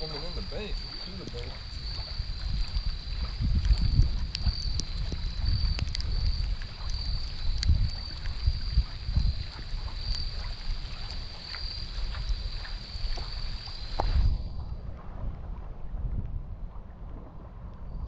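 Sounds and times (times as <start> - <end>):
wind buffeting microphone: 0.0 - 18.0
light ticks: 0.8 - 14.2.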